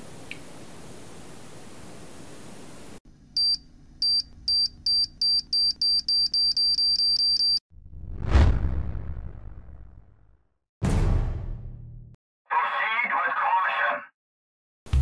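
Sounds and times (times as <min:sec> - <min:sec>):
whoosh: 0:07.8 - 0:11.4
loud low boom: 0:07.8 - 0:12.2.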